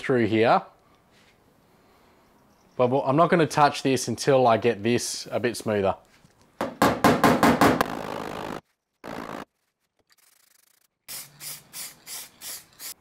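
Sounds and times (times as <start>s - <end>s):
aerosol spray can hissing: 10.4s - 13.0s.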